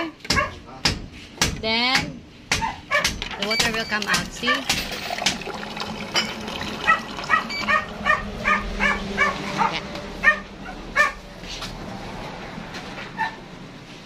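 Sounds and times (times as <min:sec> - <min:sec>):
dog barking: 0:00.3 - 0:00.6, 0:02.6 - 0:03.2, 0:04.4 - 0:04.7, 0:06.8 - 0:11.2, 0:13.2 - 0:13.4.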